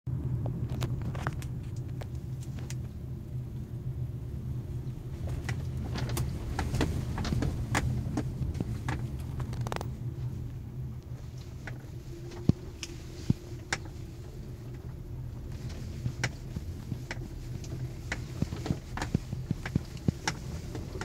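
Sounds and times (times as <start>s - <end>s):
car engine and tyre rumble: 0.1s - 21.0s
sharp clicks and knocks: 5.3s - 10.0s, 15.6s - 21.0s.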